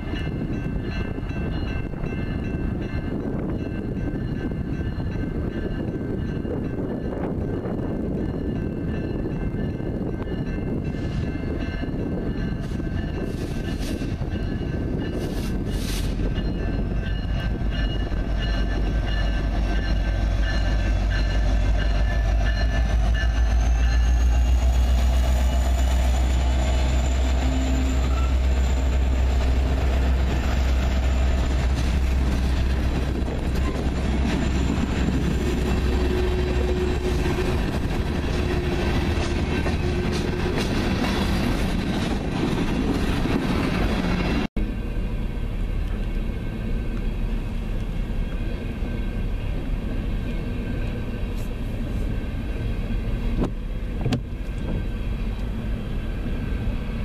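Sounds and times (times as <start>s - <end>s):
crossing bell ringing: 0.0s - 41.9s
diesel locomotive rumbling: 0.0s - 57.0s.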